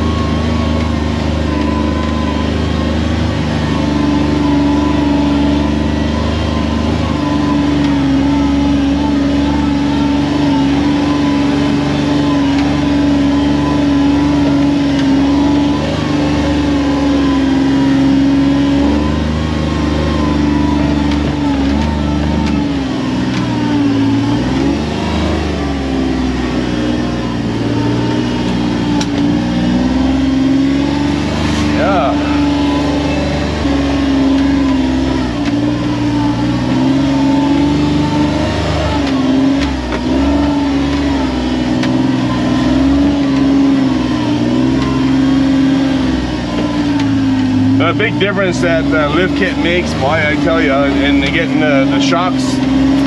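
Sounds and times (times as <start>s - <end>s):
vehicle engine running: 0.0s - 53.0s.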